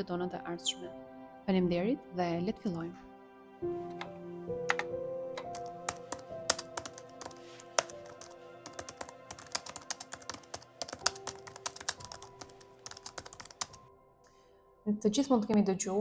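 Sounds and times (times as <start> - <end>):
soft music with held notes: 0.0 - 16.0
keyboard typing clicks: 3.8 - 13.8.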